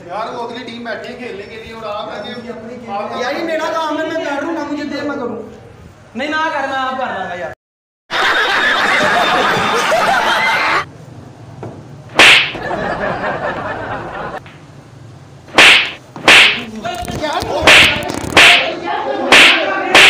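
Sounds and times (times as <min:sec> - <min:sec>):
audience laughing and clapping: 0:08.1 - 0:10.8, 0:12.6 - 0:14.5
loud slap cracks: 0:12.1 - 0:12.6, 0:15.5 - 0:16.7, 0:17.6 - 0:20.0.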